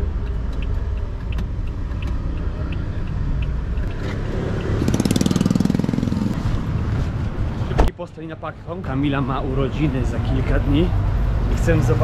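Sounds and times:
turn signal ticking: 0.0s - 5.9s
car road and engine rumble: 0.0s - 12.0s.

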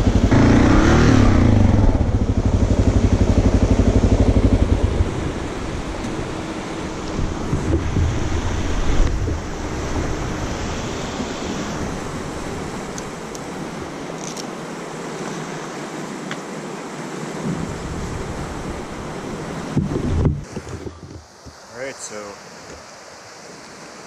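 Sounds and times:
wind buffeting microphone: 0.0s - 14.0s, 17.4s - 21.6s.

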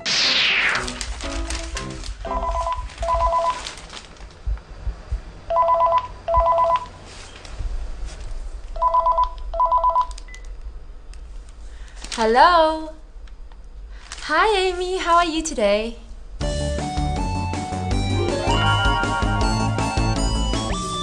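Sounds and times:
newspaper pages rustling: 0.8s - 4.6s, 7.0s - 8.6s, 11.8s - 12.3s, 13.9s - 14.8s.

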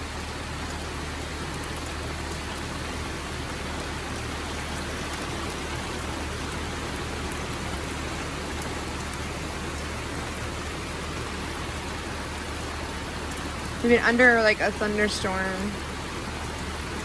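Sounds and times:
heavy rain pouring: 0.0s - 17.0s.

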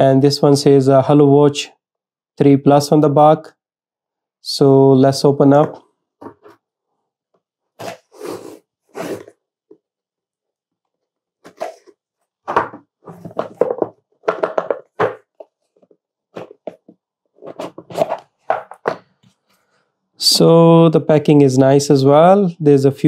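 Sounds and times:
cardboard box scraping and tapping: 11.4s - 19.0s.

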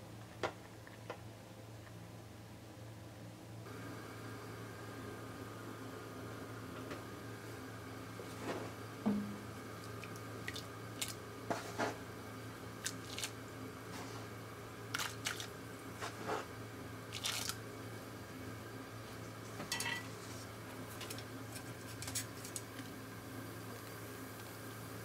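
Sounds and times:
low hum: 3.7s - 16.0s
noodles splashing into pot: 14.9s - 15.6s, 17.1s - 17.6s.

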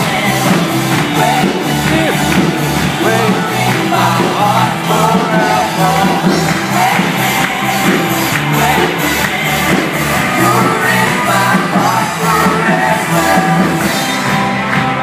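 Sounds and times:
person singing lead vocals: 0.0s - 14.4s
drums: 0.0s - 15.0s
electric guitars: 0.0s - 15.0s.

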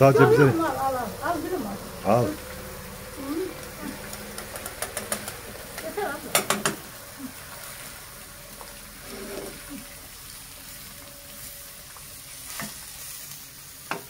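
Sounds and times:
food sizzling in oil: 0.0s - 14.0s.

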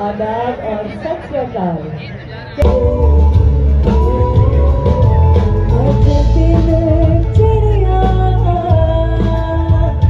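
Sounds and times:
live band playing: 2.6s - 10.0s
woman singing into microphone: 2.6s - 10.0s.

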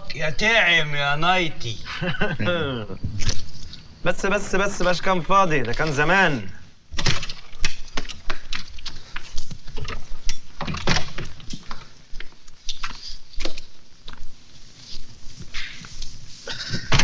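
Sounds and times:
cloth rustling: 5.4s - 17.0s.

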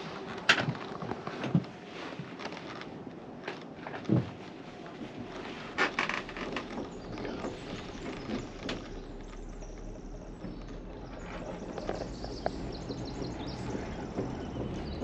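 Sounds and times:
gondola cabin clicking and knocking: 2.4s - 15.0s
low steady rumble: 5.1s - 15.0s.

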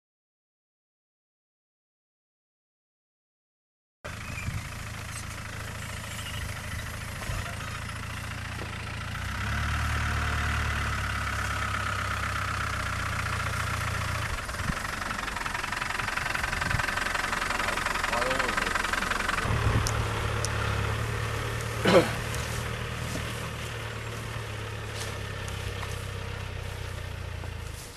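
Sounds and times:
diesel engine idling: 4.1s - 27.9s.

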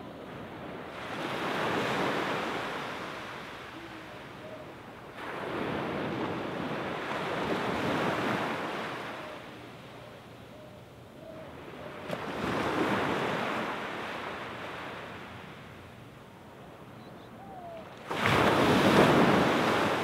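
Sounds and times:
small waves washing on sand: 5.1s - 9.2s, 17.9s - 20.0s.

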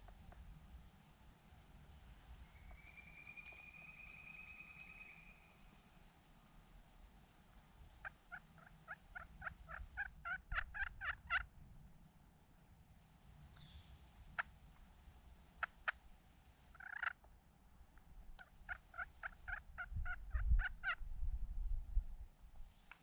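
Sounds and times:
turkey yelping: 8.0s - 11.5s, 16.7s - 17.2s, 18.4s - 21.0s.

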